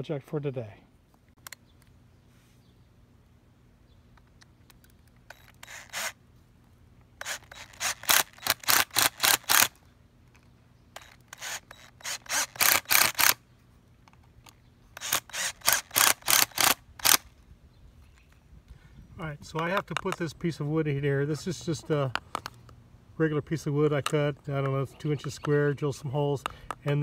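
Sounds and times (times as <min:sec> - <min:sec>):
cordless driver driving screws: 0:04.2 - 0:06.2, 0:07.2 - 0:09.8, 0:11.0 - 0:13.4, 0:15.0 - 0:17.2.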